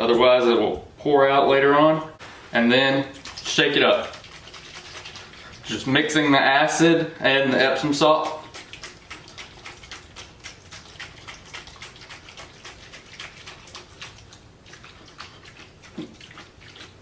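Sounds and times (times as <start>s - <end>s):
liquid sloshing in battery: 3.1s - 6.3s, 7.6s - 17.0s.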